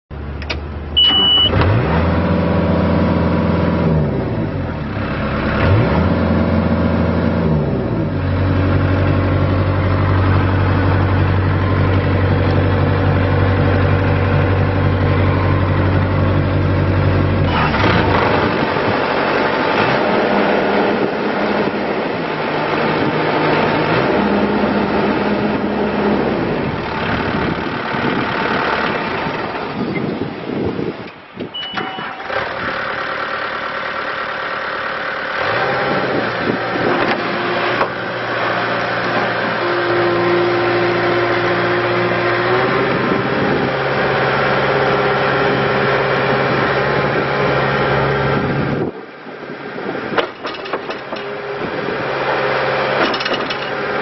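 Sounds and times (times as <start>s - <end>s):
diesel engine starting and revving: 0.1s - 54.0s
short high beep: 1.0s - 1.6s, 31.5s - 32.3s.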